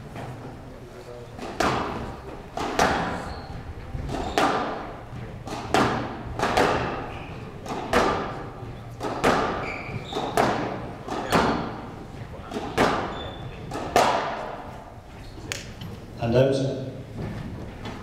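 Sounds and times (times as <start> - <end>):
squash ball hitting rackets and walls: 1.4 - 16.0.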